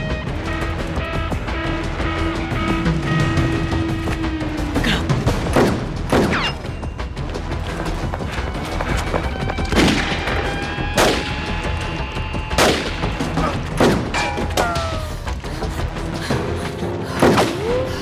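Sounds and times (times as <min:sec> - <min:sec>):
background music: 0:00.0 - 0:18.0.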